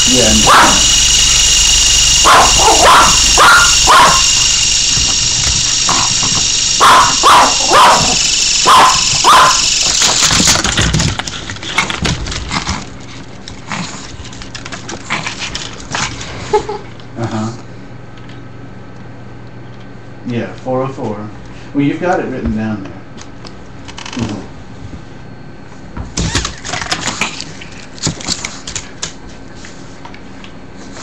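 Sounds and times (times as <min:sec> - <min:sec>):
toy helicopter motor whine: 0:00.0 - 0:12.9
small dog barking sharply: 0:02.2 - 0:04.2, 0:06.8 - 0:09.6.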